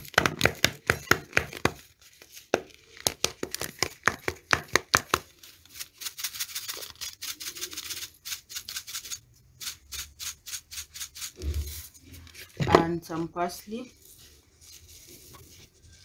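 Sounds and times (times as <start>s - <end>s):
spice shaker tapping: 0.0s - 1.8s, 3.1s - 5.2s
spice shaker rattling: 3.8s - 11.9s.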